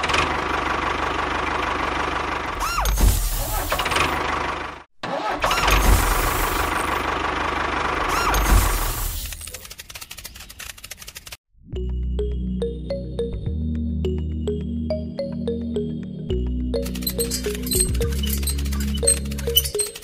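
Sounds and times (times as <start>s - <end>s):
engine running with low pulsing: 0.0s - 4.9s, 5.5s - 12.0s, 15.8s - 20.0s.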